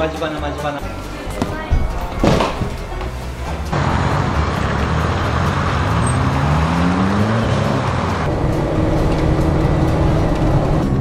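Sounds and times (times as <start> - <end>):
road noise: 0.0 - 11.0
car engine accelerating: 3.3 - 11.0.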